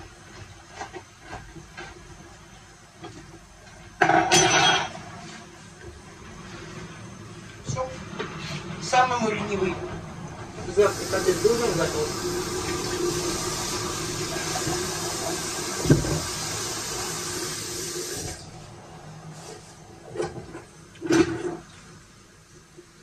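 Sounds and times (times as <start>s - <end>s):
tap water running into steel sink: 10.7s - 18.4s.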